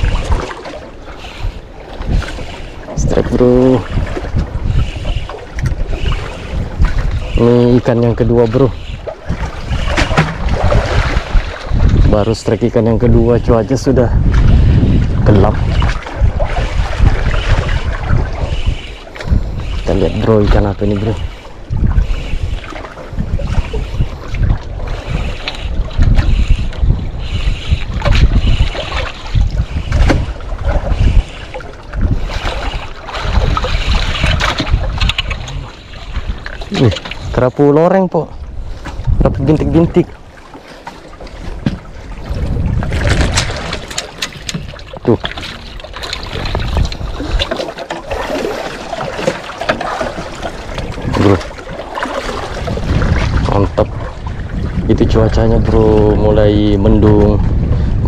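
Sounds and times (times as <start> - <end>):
water lapping against hull: 0.0 - 58.0
wind buffeting microphone: 0.0 - 58.0.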